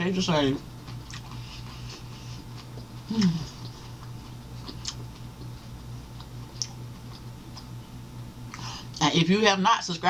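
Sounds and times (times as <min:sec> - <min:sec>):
low electrical hum: 0:00.0 - 0:10.0
mouth clicks and smacks eating: 0:00.8 - 0:07.7
woman humming mm: 0:03.0 - 0:03.7.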